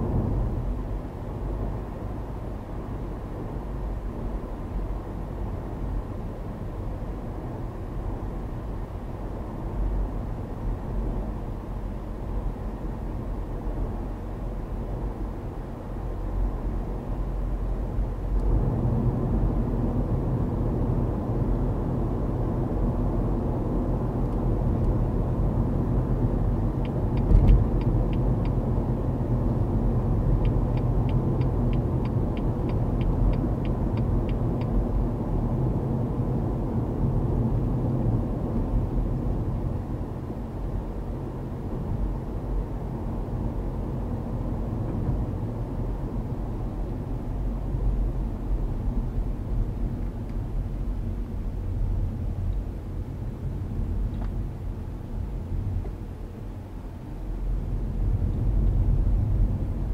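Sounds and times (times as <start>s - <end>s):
car road and engine rumble: 0.0s - 59.9s
turn indicator ticking: 26.8s - 28.6s, 30.3s - 34.8s.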